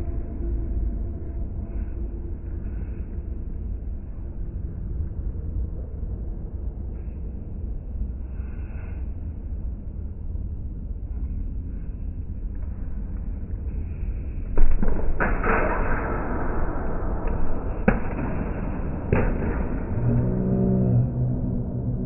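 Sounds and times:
low rumble: 0:00.0 - 0:22.0
slowed-down deep shout: 0:19.6 - 0:22.0.

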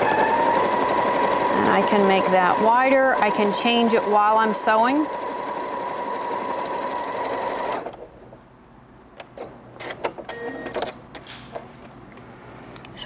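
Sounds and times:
sewing machine stitching: 0:00.0 - 0:08.0.

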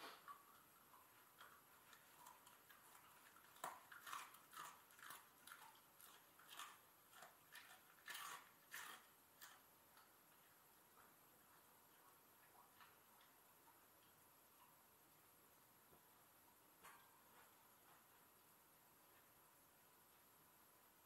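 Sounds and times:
dog crunching a hard treat: 0:01.4 - 0:09.6.

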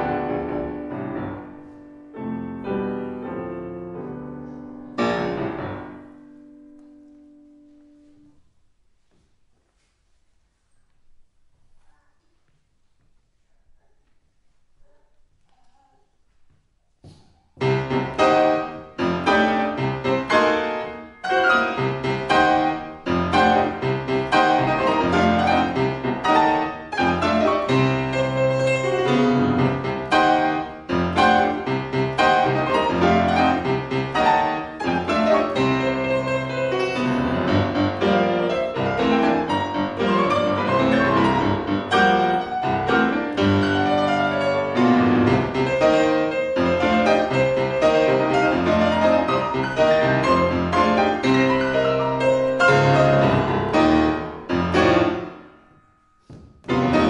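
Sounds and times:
grand piano played four hands: 0:00.0 - 0:08.7, 0:17.1 - 0:57.0.

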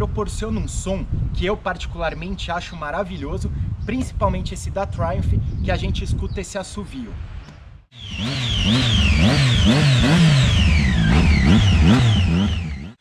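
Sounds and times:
motorcycle engine revving: 0:07.9 - 0:13.0
high engine whistle: 0:08.0 - 0:13.0.

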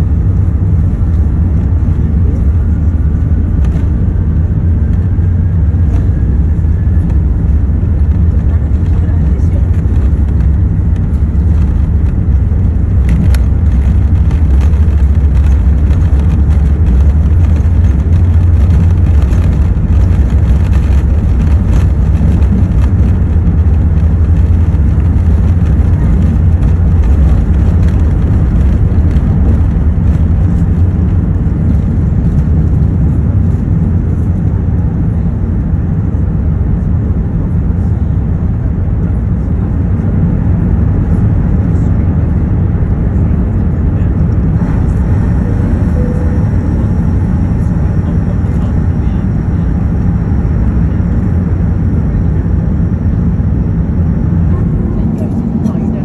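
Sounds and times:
jet engines at takeoff thrust: 0:00.0 - 0:56.0.

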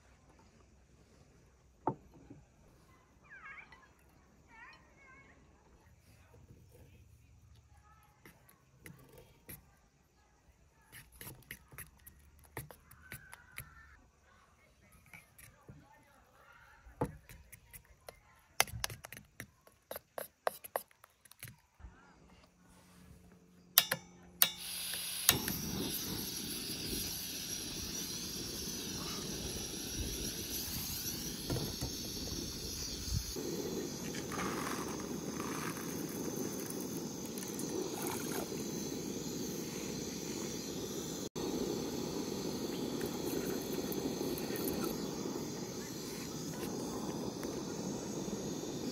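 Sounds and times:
gas stove burner hissing: 0:23.8 - 0:48.9.

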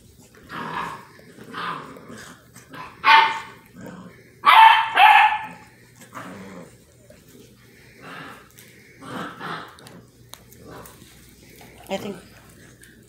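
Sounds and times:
puppies barking: 0:02.8 - 0:03.7, 0:04.4 - 0:05.7.

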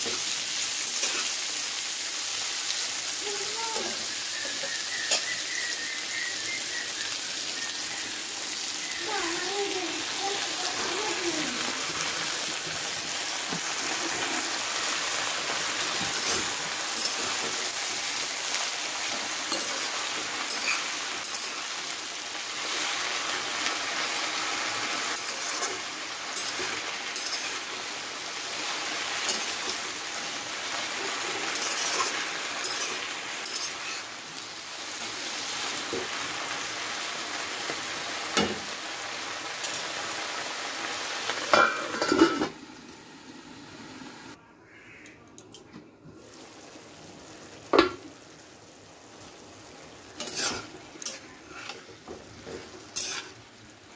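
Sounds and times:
leaves frying in oil: 0:00.0 - 0:45.0, 0:46.1 - 0:53.9
spatula scraping and clinking on pan: 0:16.0 - 0:17.5, 0:19.5 - 0:21.6, 0:25.1 - 0:27.7, 0:29.2 - 0:29.8, 0:31.4 - 0:34.1, 0:50.2 - 0:53.4.

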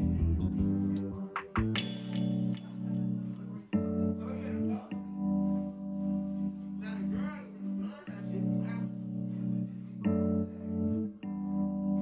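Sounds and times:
held chords background music: 0:00.0 - 0:12.0
person speaking: 0:02.3 - 0:05.6, 0:06.7 - 0:11.0.

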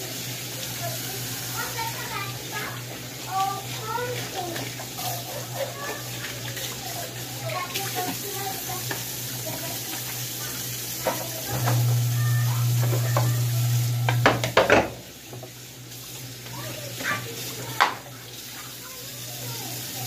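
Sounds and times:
tap water running into sink: 0:00.0 - 0:20.0
low steady hum: 0:11.5 - 0:14.6.

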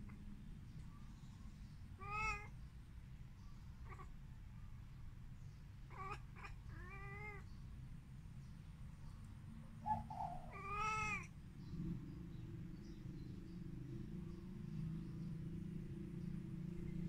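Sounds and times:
cat chirping: 0:02.0 - 0:02.5, 0:05.9 - 0:07.4, 0:09.8 - 0:11.3
cat meowing: 0:02.0 - 0:02.5, 0:05.9 - 0:07.5, 0:10.2 - 0:11.3.

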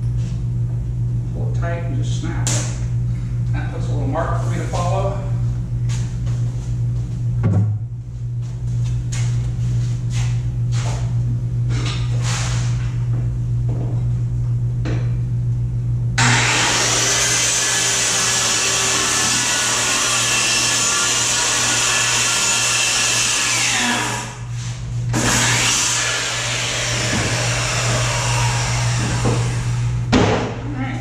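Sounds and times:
circular saw cutting plywood: 0:16.2 - 0:24.5, 0:25.1 - 0:29.9.

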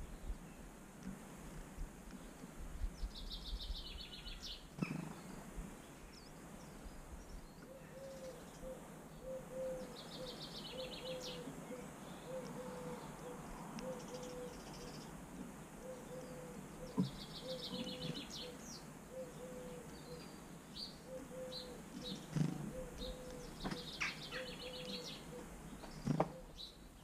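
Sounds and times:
songbird trilling: 0:15.8 - 0:20.3, 0:21.0 - 0:25.4.

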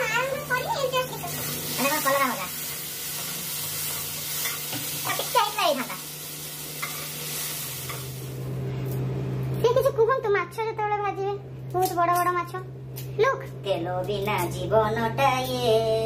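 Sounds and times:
vegetables sizzling in oil: 0:00.0 - 0:08.6.

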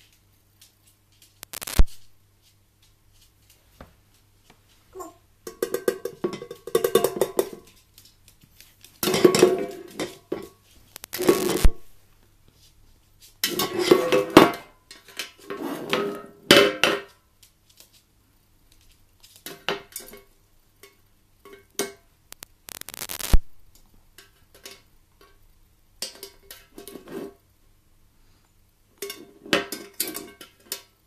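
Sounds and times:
tin watering can clanking on floor: 0:09.0 - 0:10.6.

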